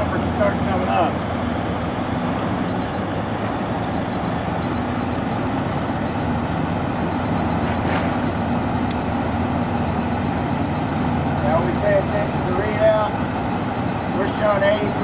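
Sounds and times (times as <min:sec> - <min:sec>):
low engine drone: 0:00.0 - 0:15.0
radiation detector beeps: 0:02.6 - 0:03.1, 0:03.8 - 0:06.4, 0:07.0 - 0:15.0.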